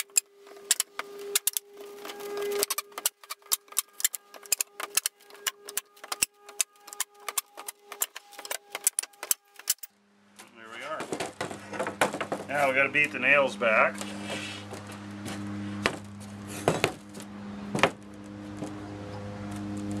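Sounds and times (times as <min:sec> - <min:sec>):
pry bar clicks and wood creaks: 0:00.0 - 0:09.9.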